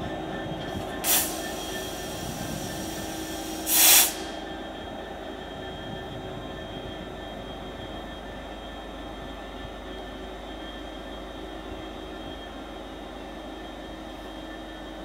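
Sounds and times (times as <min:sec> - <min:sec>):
diesel locomotive engine running: 0:00.0 - 0:15.0
air hissing: 0:01.0 - 0:04.4.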